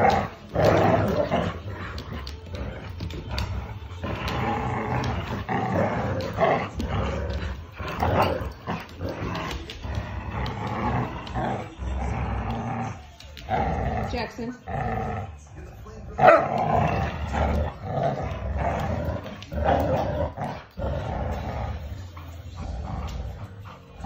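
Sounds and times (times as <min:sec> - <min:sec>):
dogs growling in play: 0:00.0 - 0:24.0.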